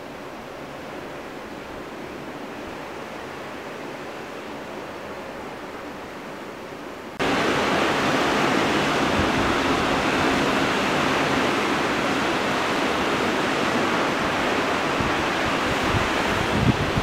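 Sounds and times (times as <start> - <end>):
ocean surf breaking: 7.2 - 17.0
wind buffeting microphone: 7.2 - 17.0.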